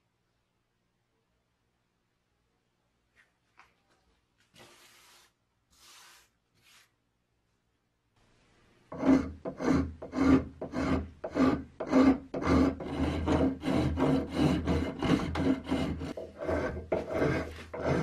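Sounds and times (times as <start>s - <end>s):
hand rasp filing wood: 8.9s - 18.0s.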